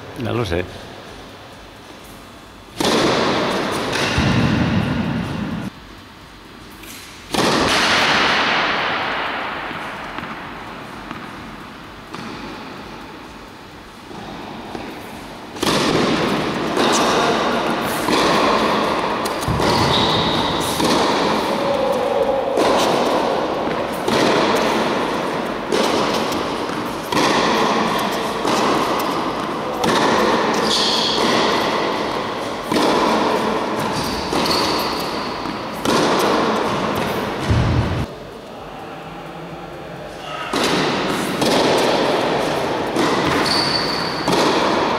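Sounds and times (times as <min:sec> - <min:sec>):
racket hitting tennis ball with echo: 0:02.0 - 0:05.7, 0:06.7 - 0:38.1, 0:40.2 - 0:44.9
short high squeaks: 0:30.5 - 0:31.2, 0:34.0 - 0:35.4, 0:43.3 - 0:44.3.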